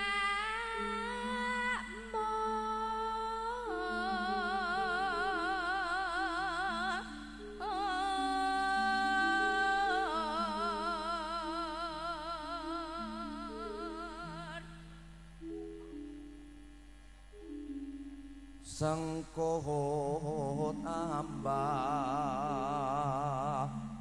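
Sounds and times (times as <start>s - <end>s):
woman singing with vibrato: 0.0s - 15.0s, 18.7s - 24.0s
sustained keyboard notes: 0.0s - 24.0s.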